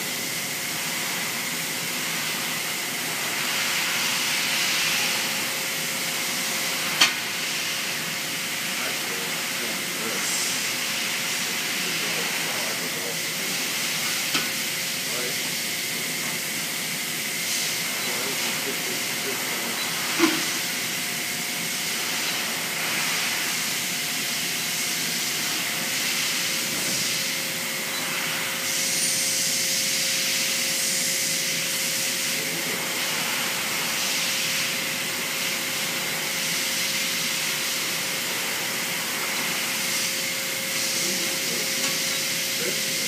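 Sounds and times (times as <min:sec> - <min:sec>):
steady hiss: 0:01.8 - 0:43.0
bright hiss: 0:15.3 - 0:20.9.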